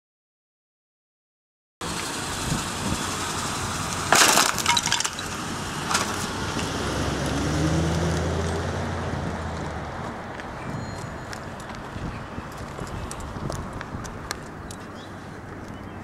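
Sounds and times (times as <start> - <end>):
low car engine hum: 1.8 - 16.0
wood cracking and splintering: 4.0 - 6.4.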